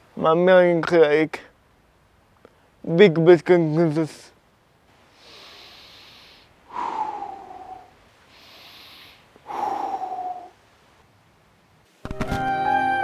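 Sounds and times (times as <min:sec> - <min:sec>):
man breathing deeply: 0:05.0 - 0:10.6.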